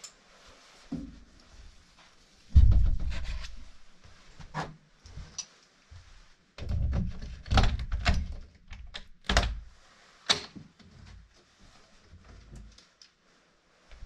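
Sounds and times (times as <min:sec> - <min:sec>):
thumps and knocks: 0:02.5 - 0:03.7.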